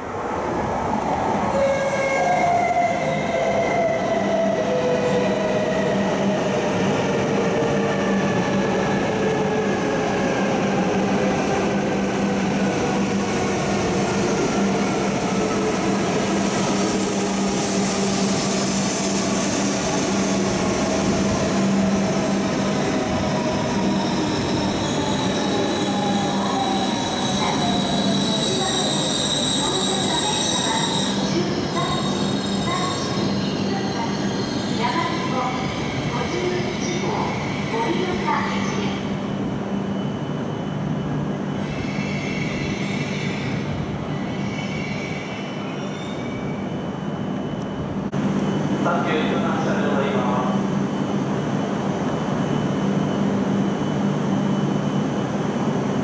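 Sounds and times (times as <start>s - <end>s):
train rushing and slowing: 0.0s - 56.0s
high steady squeal: 23.8s - 34.8s.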